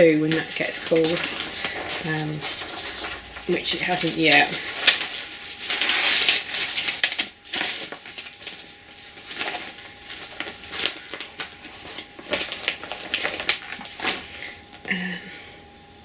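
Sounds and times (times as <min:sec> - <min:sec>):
plastic bag rustling: 0:00.0 - 0:14.8.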